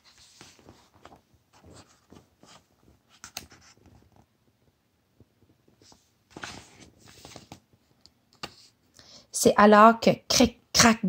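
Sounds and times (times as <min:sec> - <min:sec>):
paper pages rustling: 0:00.0 - 0:04.3, 0:05.7 - 0:08.7.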